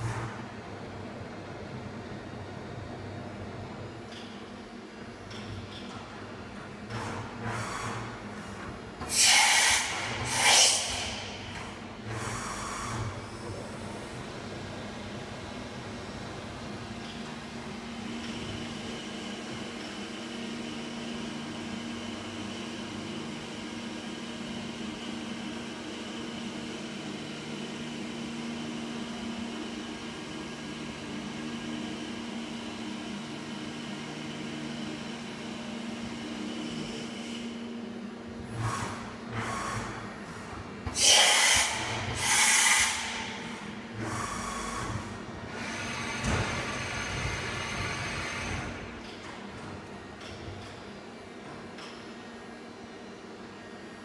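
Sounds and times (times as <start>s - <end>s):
short hissing bursts: 9.1s - 11.1s.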